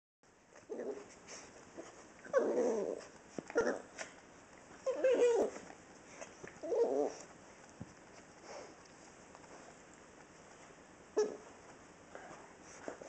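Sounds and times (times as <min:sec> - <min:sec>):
dogs growling whiny in play: 0:00.5 - 0:07.7, 0:11.1 - 0:11.6.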